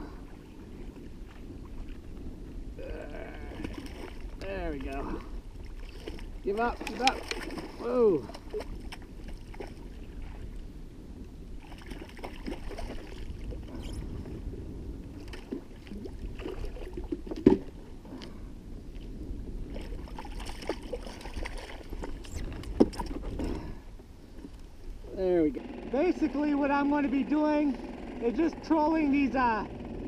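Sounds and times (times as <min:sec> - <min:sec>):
water sloshing against kayak hull: 0:00.1 - 0:10.7, 0:11.6 - 0:25.0
fish splashing: 0:03.4 - 0:04.4, 0:05.6 - 0:10.4, 0:11.6 - 0:13.6, 0:19.7 - 0:23.2.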